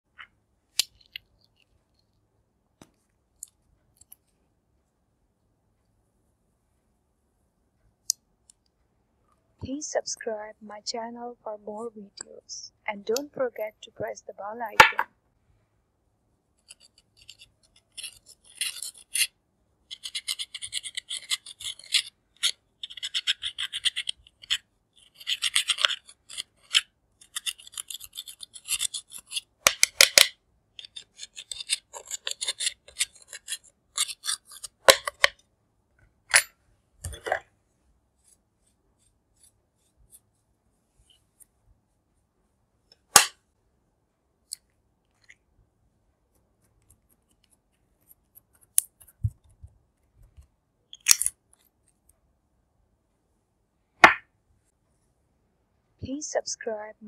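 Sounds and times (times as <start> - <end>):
metal spatula scraping eyeshadow: 16.6 - 19.3, 19.9 - 29.5, 30.8 - 35.3
sharp taps and clicks: 54.0 - 54.2.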